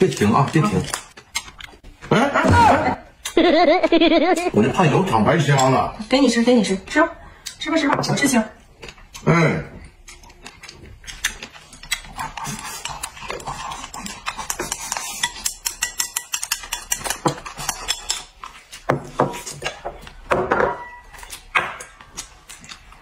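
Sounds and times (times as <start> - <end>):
chopsticks clicking on bowls: 10.1 - 18.9.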